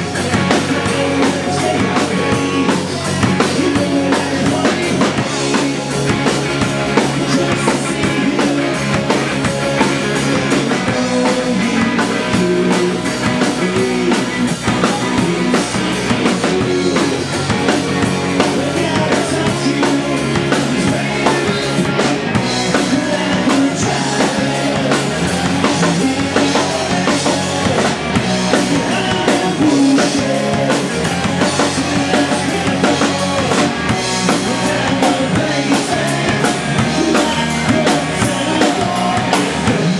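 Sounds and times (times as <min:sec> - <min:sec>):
bass guitar: 0:00.0 - 0:39.9
drum kit: 0:00.0 - 0:39.9
guitar: 0:00.0 - 0:39.9.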